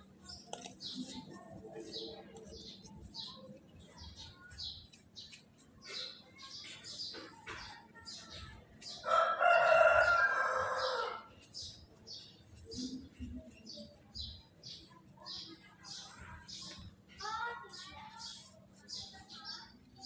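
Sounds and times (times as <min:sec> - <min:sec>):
rooster crowing: 0:09.0 - 0:11.3.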